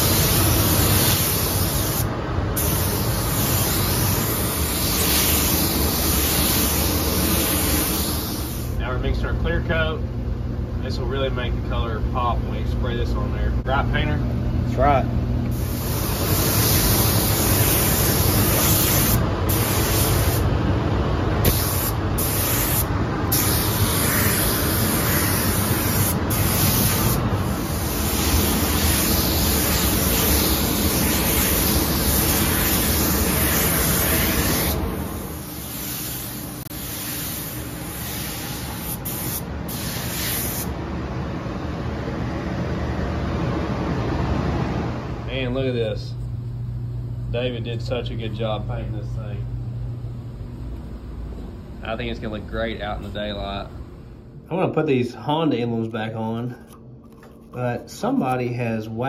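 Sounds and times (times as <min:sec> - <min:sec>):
paint spray gun hissing: 0:00.0 - 0:08.8, 0:15.5 - 0:20.4, 0:21.4 - 0:40.7
steady low rumble: 0:00.0 - 0:35.8.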